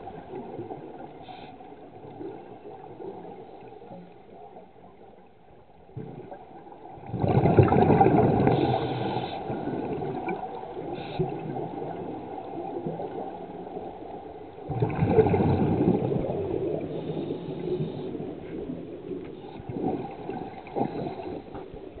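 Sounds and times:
underwater regulator bubbling: 7.0 - 21.8.

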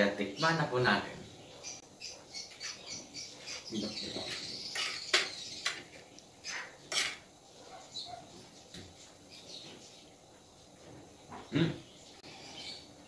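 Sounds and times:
spoon scraping on a plate: 3.5 - 5.9, 6.5 - 7.3.

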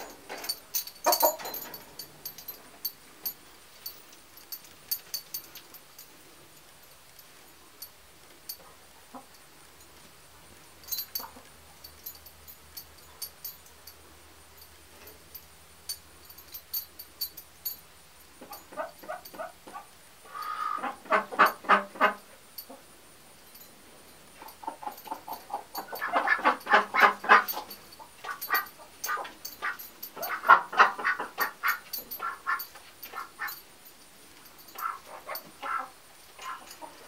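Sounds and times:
chickens clucking: 18.4 - 22.8, 24.4 - 33.6, 34.8 - 37.0.

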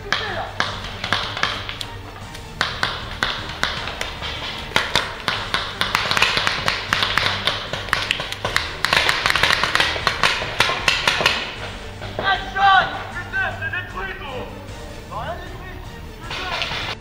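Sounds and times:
paintball markers firing: 0.0 - 12.3, 16.3 - 17.0.

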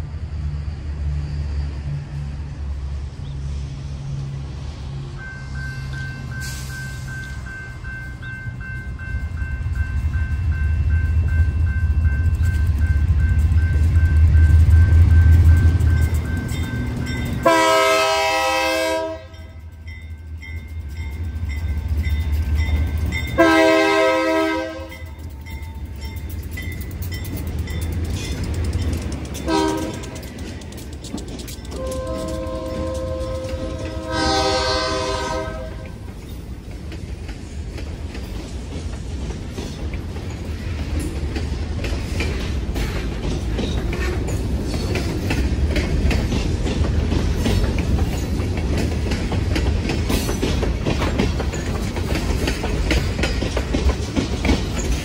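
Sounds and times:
train wheels clacking on rails: 5.1 - 55.0
locomotive air horn blasts: 17.4 - 19.5, 23.4 - 25.1, 29.4 - 30.2, 31.8 - 36.0.

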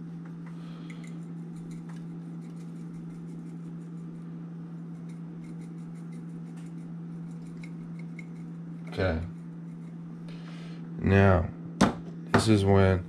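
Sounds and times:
steady low hum: 0.0 - 13.0
spice shaker ticking: 0.8 - 4.2, 4.8 - 10.0.

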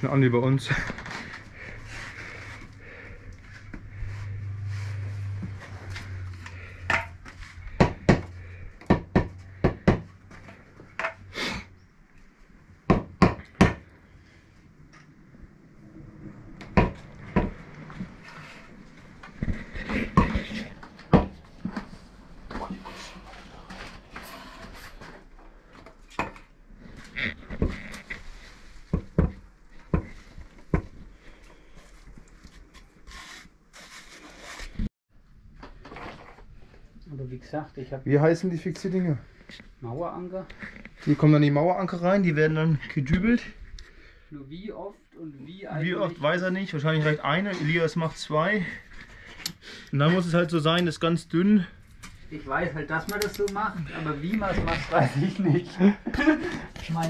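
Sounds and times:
low hum: 0.9 - 9.6.

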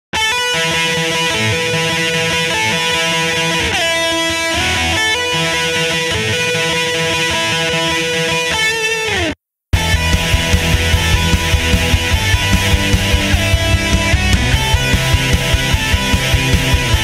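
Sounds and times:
guitar music: 0.1 - 17.0.

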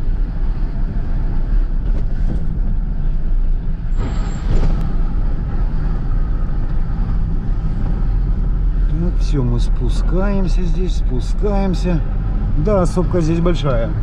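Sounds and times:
car engine and road rumble: 0.0 - 14.0.

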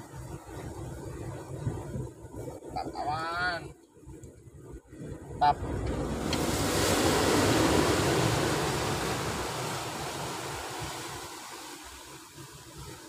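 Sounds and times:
surf washing over rocks: 4.9 - 13.0.

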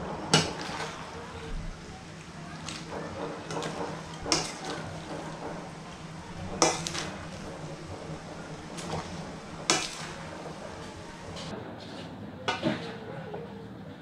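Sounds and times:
spoon stirring vegetables in pan: 1.8 - 11.5
metal clanks on pan: 2.7 - 5.6, 6.5 - 7.4, 8.7 - 10.2.

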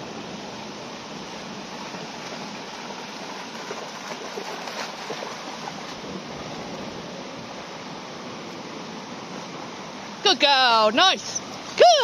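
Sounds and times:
river running over stones: 0.0 - 12.0
dog splashing through water: 1.7 - 6.7.

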